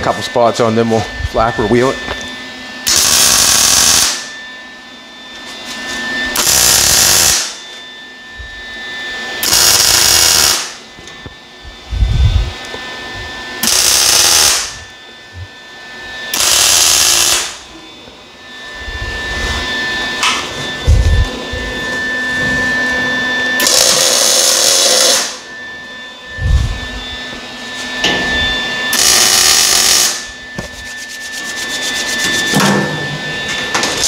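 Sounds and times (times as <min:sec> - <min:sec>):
crackling welds: 0:02.9 - 0:04.3, 0:06.4 - 0:07.6, 0:09.4 - 0:10.8, 0:13.6 - 0:14.7, 0:16.3 - 0:17.6, 0:23.6 - 0:25.4, 0:28.9 - 0:30.3.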